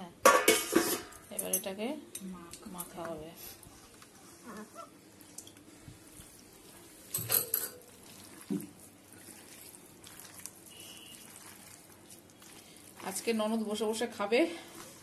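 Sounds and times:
hands squishing wet meat: 0:07.8 - 0:15.0.

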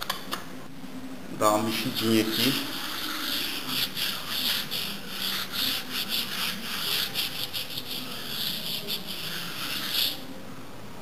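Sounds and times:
hand rubbing gritty wall: 0:01.6 - 0:10.2.

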